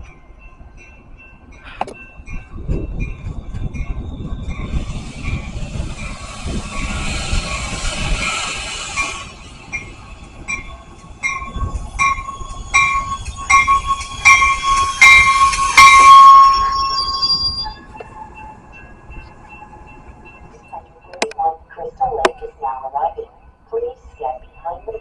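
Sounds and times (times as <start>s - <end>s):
train brake squeal: 3.7s - 20.0s.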